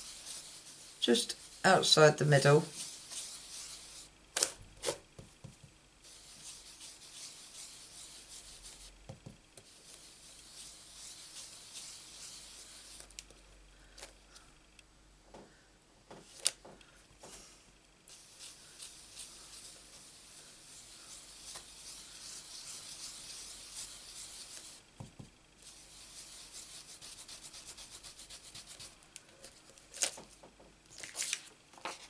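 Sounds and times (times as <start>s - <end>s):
brush rubbing on paper: 0.0s - 4.2s, 6.0s - 9.0s, 9.6s - 13.1s, 18.1s - 29.0s.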